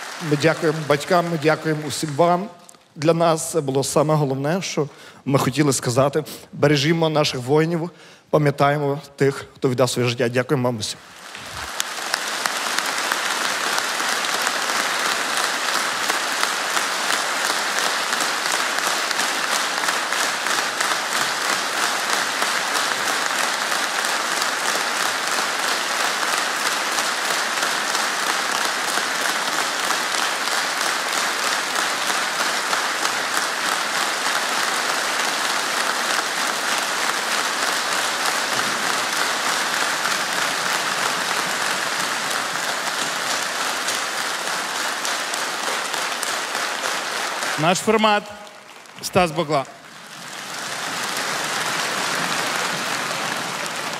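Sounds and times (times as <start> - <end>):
audience applauding: 0.0 - 4.5, 11.0 - 53.9.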